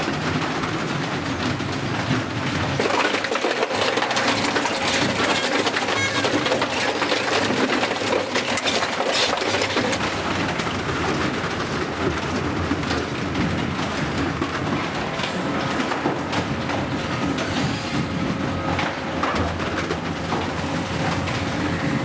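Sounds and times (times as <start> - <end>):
shredder crushing plastic: 0.0 - 22.0.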